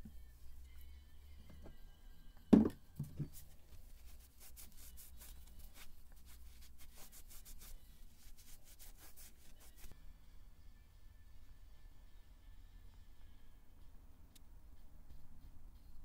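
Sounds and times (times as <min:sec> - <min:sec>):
cloth wiping: 0:03.2 - 0:09.9.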